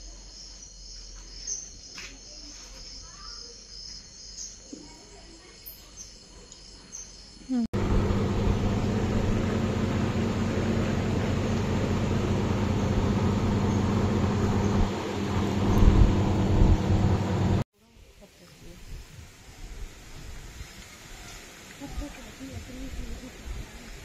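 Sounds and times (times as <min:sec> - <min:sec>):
crickets chirping: 0:00.0 - 0:07.7
vehicle engine hum: 0:07.7 - 0:17.6
road noise: 0:07.8 - 0:17.6.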